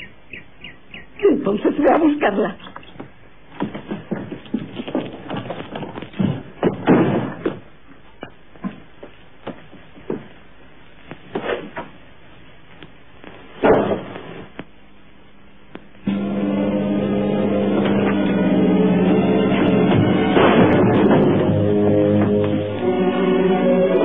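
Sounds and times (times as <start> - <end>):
knocks and thumps on wood: 3.0 - 10.3
wooden door kicked open: 6.2 - 7.7, 13.6 - 14.1, 19.9 - 21.6.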